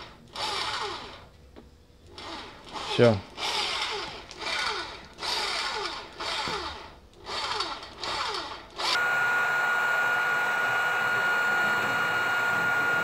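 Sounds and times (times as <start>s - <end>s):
outboard motor whining: 9.0s - 13.0s.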